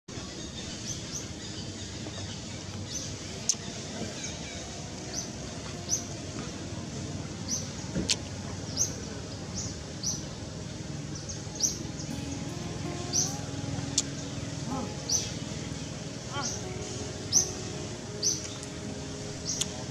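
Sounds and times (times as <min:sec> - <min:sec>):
steady low rumble: 0:00.4 - 0:19.9
bird chirping: 0:11.1 - 0:19.9.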